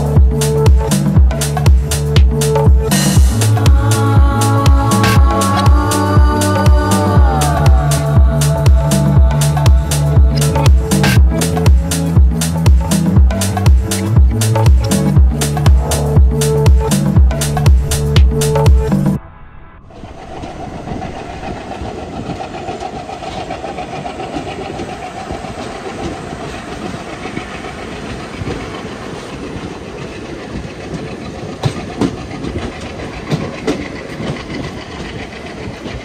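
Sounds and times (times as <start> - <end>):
train wheels rumbling on track: 0.0 - 19.2, 19.9 - 36.0
train wheels clacking: 20.0 - 36.0.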